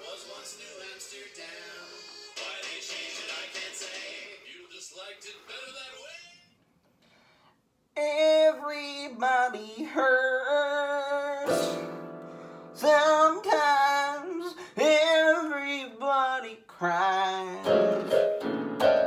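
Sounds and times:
man singing high notes: 8.0 - 12.0, 12.6 - 18.2.

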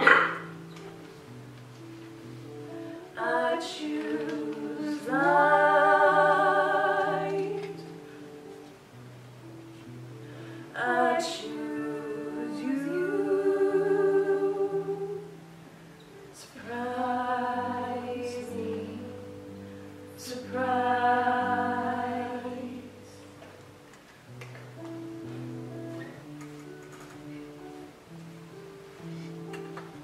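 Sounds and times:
choir singing held chords: 2.7 - 8.3, 10.4 - 15.5, 16.3 - 23.4.

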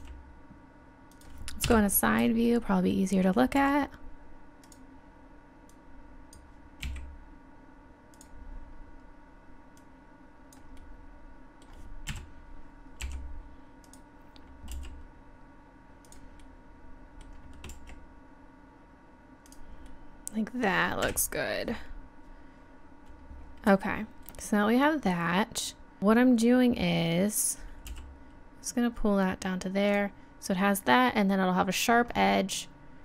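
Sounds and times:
faint electrical hum: 0.0 - 33.0
keyboard and mouse clicks: 1.1 - 1.8, 4.6 - 4.9, 16.0 - 16.5.

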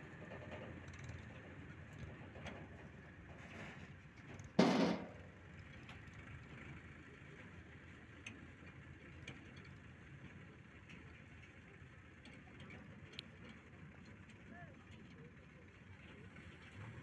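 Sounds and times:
distant diesel engines running: 0.0 - 17.0
light ticks: 12.6 - 13.6.

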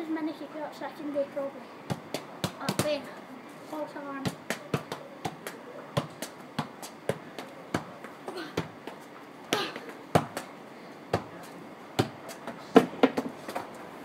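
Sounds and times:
football thudding on paving: 1.9 - 3.0, 4.2 - 13.6.

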